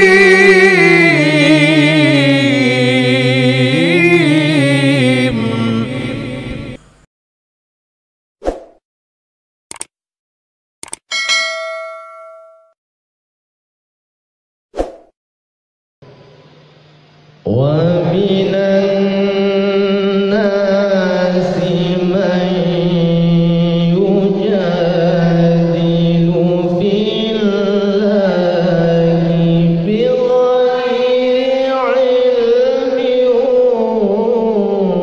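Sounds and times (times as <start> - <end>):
man reciting in melismatic chant: 0.0 - 6.8, 17.4 - 35.0.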